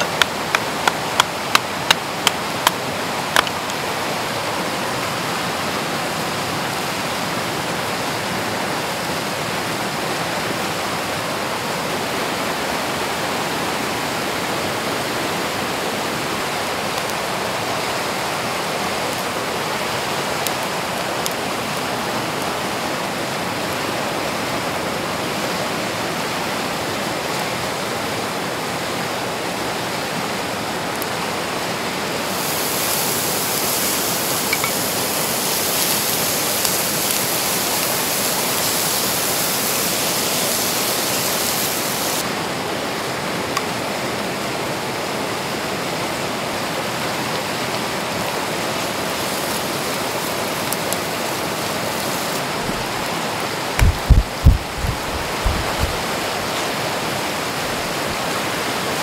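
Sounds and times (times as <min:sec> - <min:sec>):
river rushing over rocks: 0:00.0 - 0:59.0
meat sizzling in a pan: 0:32.3 - 0:42.2, 0:49.1 - 0:52.4.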